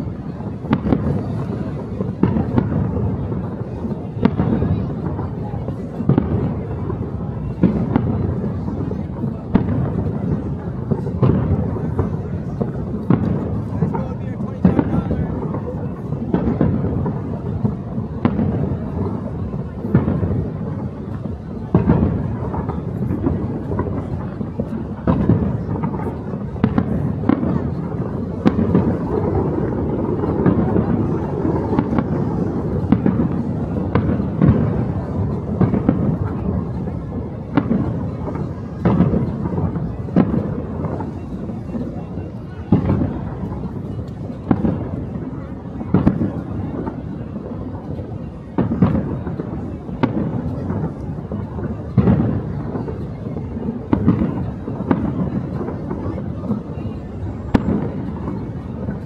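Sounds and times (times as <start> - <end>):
fireworks sharp bangs: 0.0 - 59.0.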